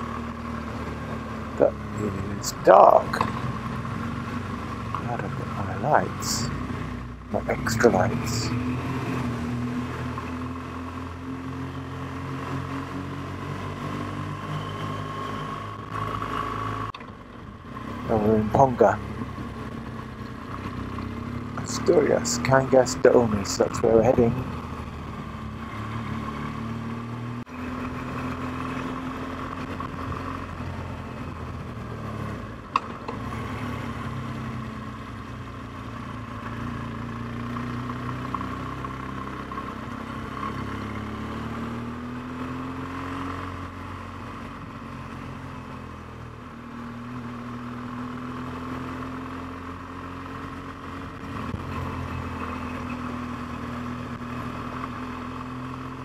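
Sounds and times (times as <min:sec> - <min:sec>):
motorcycle engine running: 0:00.0 - 0:42.9.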